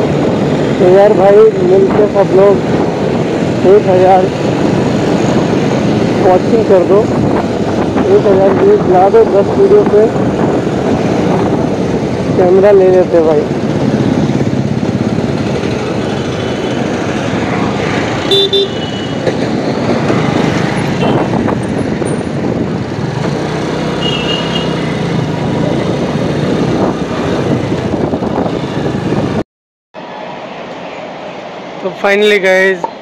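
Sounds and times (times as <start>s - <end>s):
motorcycle riding noise: 0.0s - 29.4s
rush of wind: 0.0s - 29.4s, 30.0s - 33.0s
vehicle horn toot: 18.3s - 19.2s, 21.0s - 21.3s, 24.0s - 24.7s.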